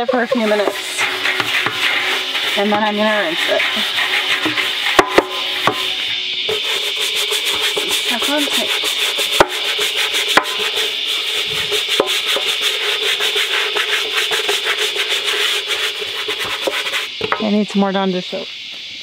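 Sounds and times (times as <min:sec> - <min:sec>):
scrubbing with rubbing strokes: 0:00.0 - 0:17.2.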